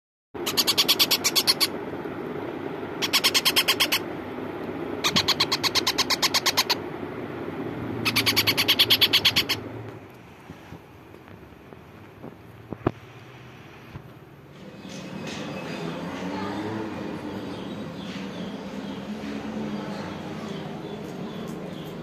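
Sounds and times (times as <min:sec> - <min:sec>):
parakeet chicks chirping: 0:00.4 - 0:01.8, 0:03.0 - 0:04.1, 0:05.0 - 0:06.9, 0:07.9 - 0:09.7, 0:14.7 - 0:22.0
steady low hum: 0:00.4 - 0:22.0.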